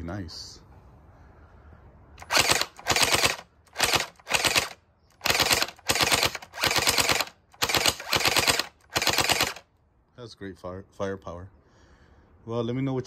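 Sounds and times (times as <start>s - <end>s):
gel blaster firing rapid bursts: 2.2s - 9.6s.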